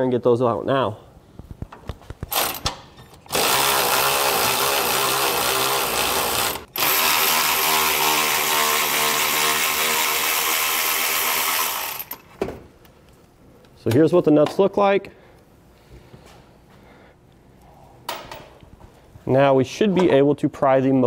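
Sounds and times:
electric ratchet motor whir: 3.3 - 12.2.

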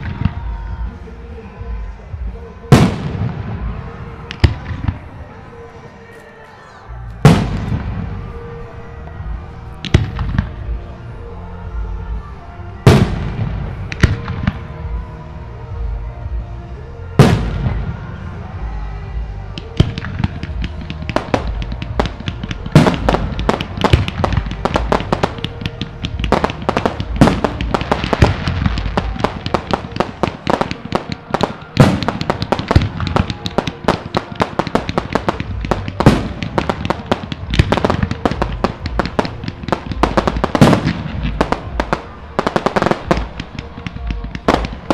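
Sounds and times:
crackle of rapid firework pops: 19.6 - 44.9
firework shells booming: 19.6 - 44.9.

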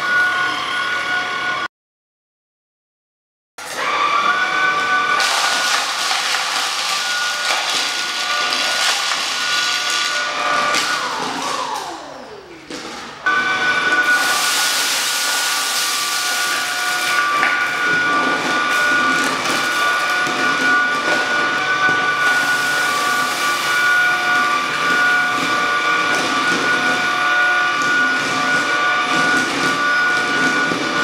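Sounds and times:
vacuum cleaner whine: 0.0 - 1.7, 3.6 - 31.0
vacuum motor winding down: 6.8 - 31.0.

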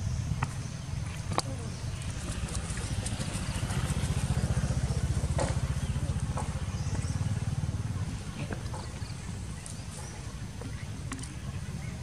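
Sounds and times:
small engine running: 2.1 - 10.2.

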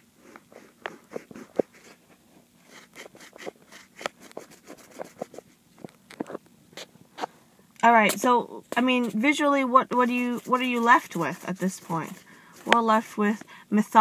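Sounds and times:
taps and strokes on touchscreen: 3.0 - 5.4, 8.1 - 13.4.

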